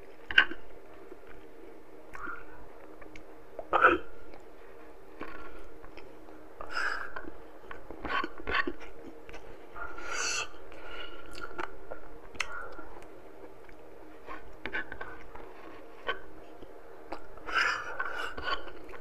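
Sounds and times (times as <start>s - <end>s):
person chewing: 11.2s - 19.0s.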